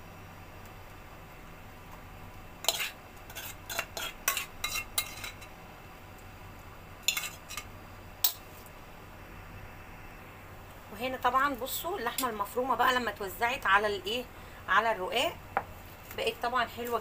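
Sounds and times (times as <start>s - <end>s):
metal spoon scraping steel bowl: 2.6s - 5.5s, 7.1s - 8.4s.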